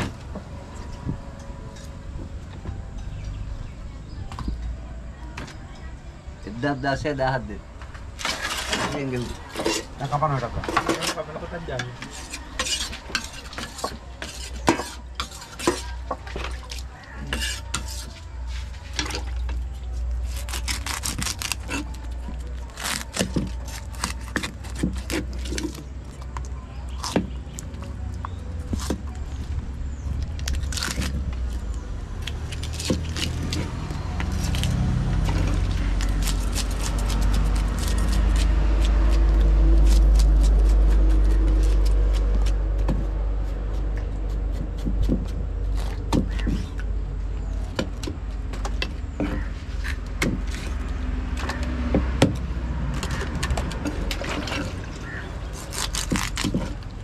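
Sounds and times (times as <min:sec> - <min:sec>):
passing vehicle engine rumble: 0:21.4 - 0:57.0
knife chopping on wooden block: 0:44.5 - 0:46.7.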